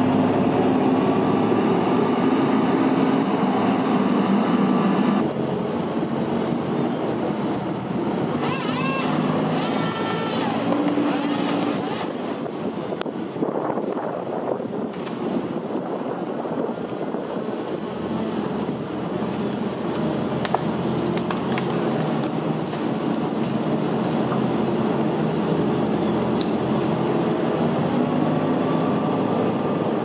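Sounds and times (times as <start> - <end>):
diesel engine running: 0.0 - 30.0
hydraulics whining: 0.0 - 30.0
grapple saw cutting tree: 8.3 - 12.4.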